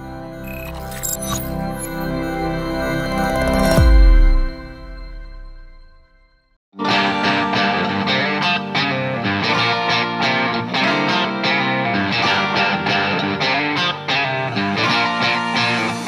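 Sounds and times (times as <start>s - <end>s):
guitar music: 6.8s - 16.0s.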